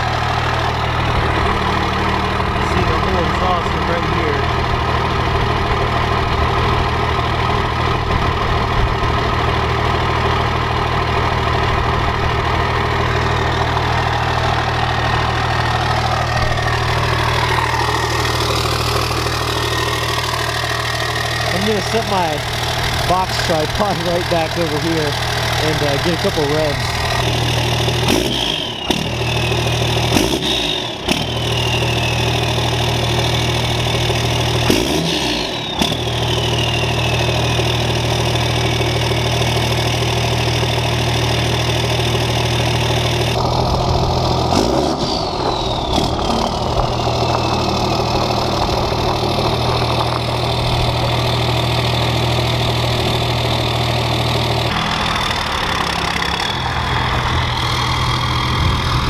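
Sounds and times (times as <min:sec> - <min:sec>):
diesel truck engine idling: 0:00.0 - 0:59.0
engine revving: 0:00.0 - 0:59.0
truck pulling away: 0:00.0 - 0:59.0
turbo whistle: 0:28.1 - 0:33.6, 0:35.3 - 0:37.7.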